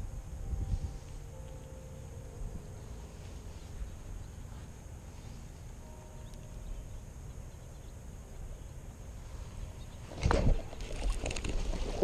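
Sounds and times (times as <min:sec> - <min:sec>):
low steady rumble: 0:00.0 - 0:12.0.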